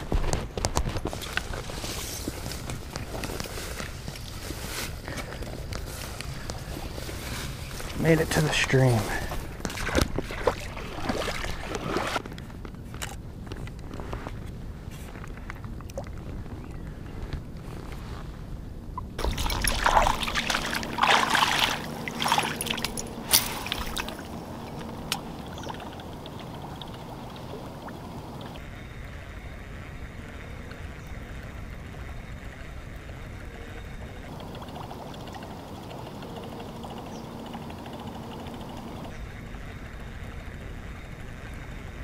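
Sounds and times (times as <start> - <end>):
stream trickling: 1.1 - 12.2, 19.2 - 28.6, 29.9 - 39.3
footsteps splashing through water: 9.0 - 12.2, 19.2 - 24.3.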